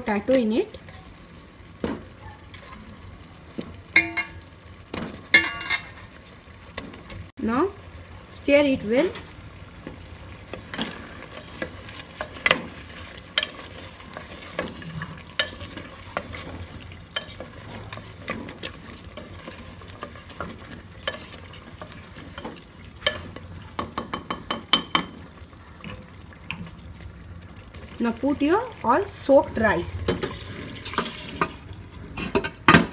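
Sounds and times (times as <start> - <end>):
curry sizzling: 0.0 - 32.9
spoon scraping a pot: 10.5 - 23.5, 30.1 - 31.6.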